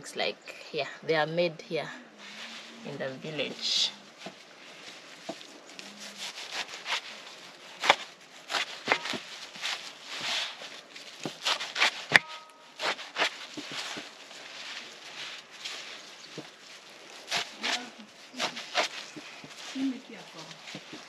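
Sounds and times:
leaves rustling: 0.0s - 21.0s
knife cutting leafy greens: 5.2s - 21.0s.

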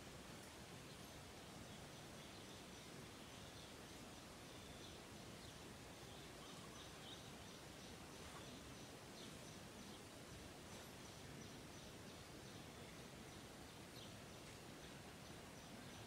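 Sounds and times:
faint background hiss: 0.0s - 16.0s
faint bird chirps: 4.4s - 10.1s.

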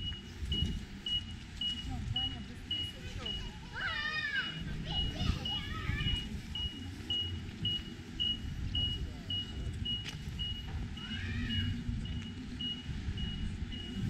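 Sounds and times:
low rumbling noise: 0.0s - 14.0s
electronic beeper beeping: 4.4s - 14.0s.

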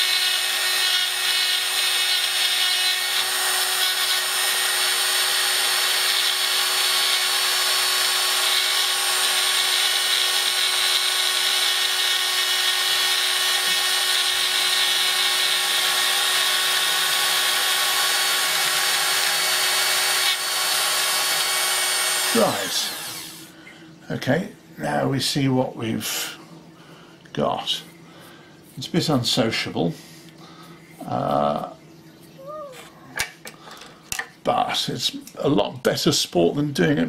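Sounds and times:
rotary drill whining: 0.0s - 23.5s.

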